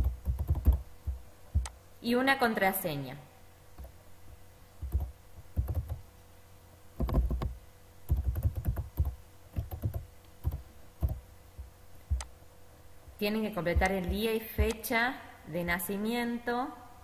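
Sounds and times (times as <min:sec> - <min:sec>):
computer keyboard typing: 0:00.0 - 0:01.7, 0:04.8 - 0:06.0, 0:07.0 - 0:11.2.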